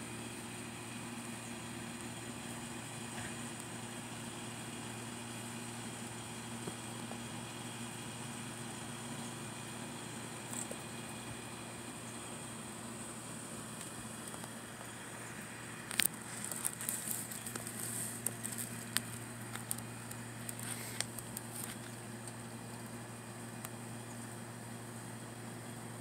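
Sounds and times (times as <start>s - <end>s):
steady low hum: 0.0s - 26.0s
crackling and clicking: 13.8s - 14.9s, 15.8s - 22.8s.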